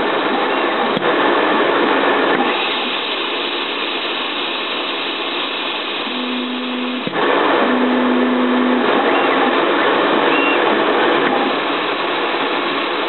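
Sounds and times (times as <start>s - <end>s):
milling machine whir: 5.2s - 13.0s
low hum: 6.0s - 9.6s.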